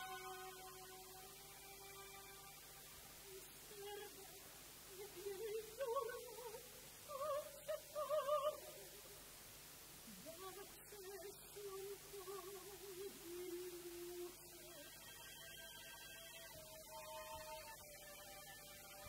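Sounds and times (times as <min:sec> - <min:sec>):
women singing opera recitative: 0:00.0 - 0:02.4, 0:03.2 - 0:09.2, 0:10.0 - 0:19.0
soft sustained orchestral chord: 0:00.0 - 0:06.6, 0:14.0 - 0:19.0.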